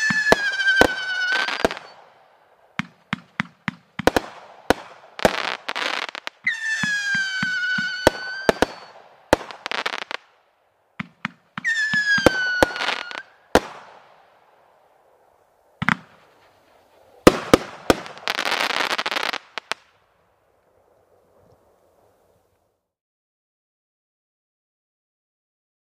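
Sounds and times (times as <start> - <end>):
firework whistles sliding down: 0.0 - 2.1, 5.2 - 9.0, 11.6 - 13.5
firework crackling: 0.0 - 22.5
firework shots thumping: 15.8 - 16.3, 17.3 - 19.2
sharp loud firework bangs: 17.2 - 19.4.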